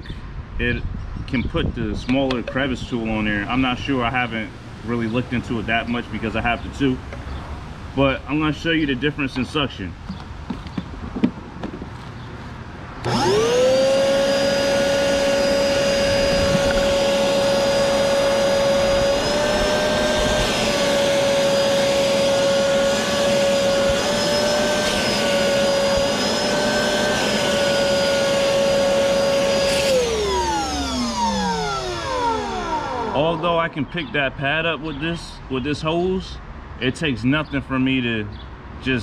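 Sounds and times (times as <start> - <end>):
shop vacuum motor whine: 13.0 - 33.7.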